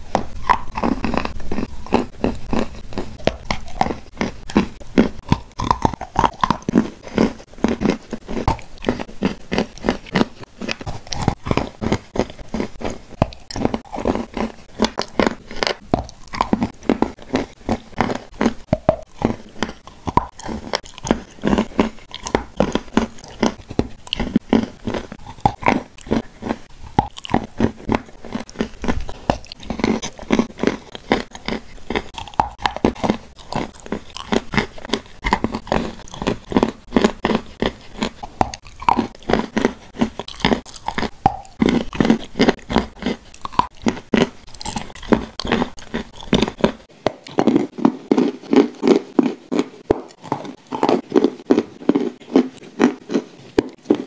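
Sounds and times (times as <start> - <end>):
crunchy chewing: 0.0 - 54.0.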